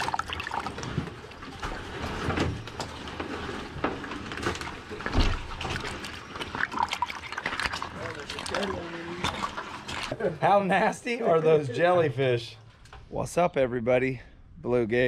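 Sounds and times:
water pouring into basin: 0.0s - 1.6s, 4.3s - 10.2s.

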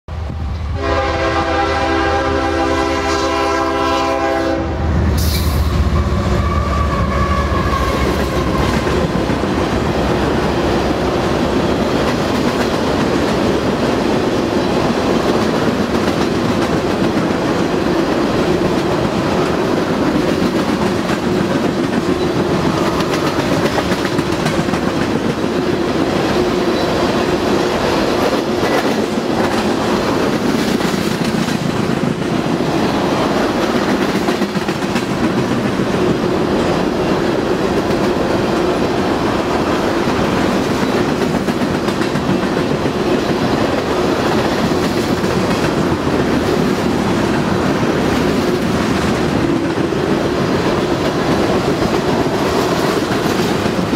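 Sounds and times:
train wheels rolling on rail: 0.1s - 53.9s
locomotive horn chord: 0.7s - 5.0s.

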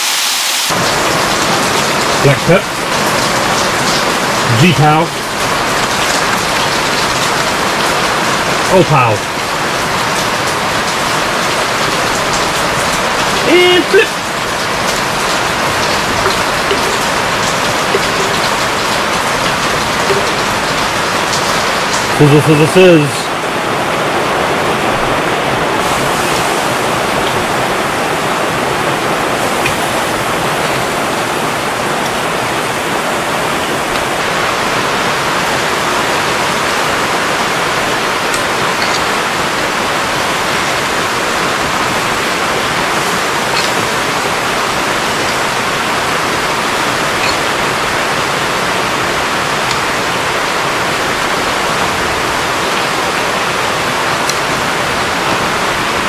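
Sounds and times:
meat sizzling on a grill: 0.0s - 1.0s.

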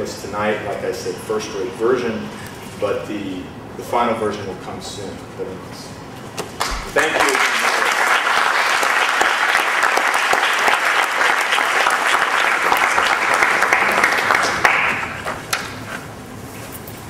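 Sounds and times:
audience applauding: 6.6s - 15.4s.

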